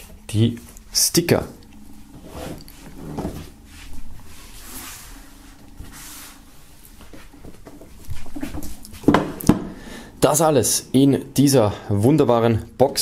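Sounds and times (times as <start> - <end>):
items sliding on wooden table: 2.2 - 6.5.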